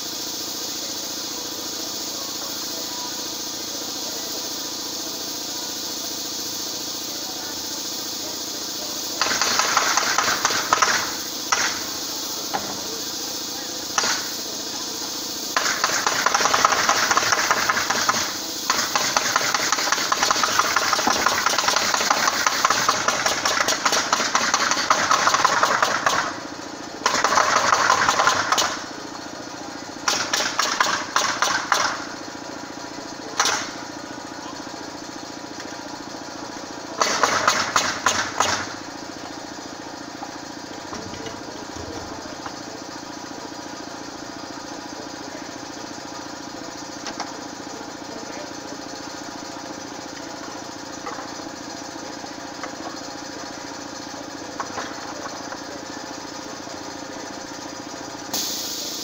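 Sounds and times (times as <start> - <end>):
small engine running: 0.0 - 59.0
power tool bursts: 7.8 - 29.0, 30.0 - 32.2, 37.0 - 39.4, 58.3 - 59.0.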